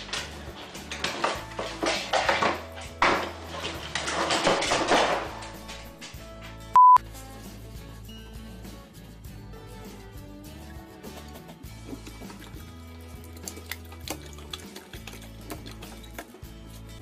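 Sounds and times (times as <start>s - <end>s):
background music: 0.0s - 17.0s
censor bleep: 6.8s - 7.0s.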